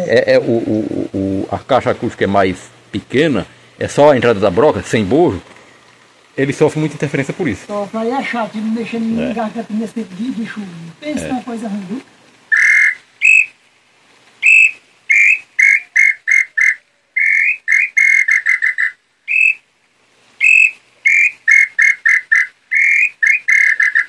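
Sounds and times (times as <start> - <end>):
wooden bird call whistling: 12.5 - 13.6, 14.4 - 19.6, 20.4 - 24.0.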